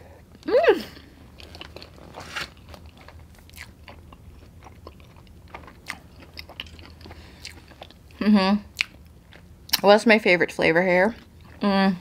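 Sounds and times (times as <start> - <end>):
person chewing food: 1.0 - 9.8, 11.2 - 11.6.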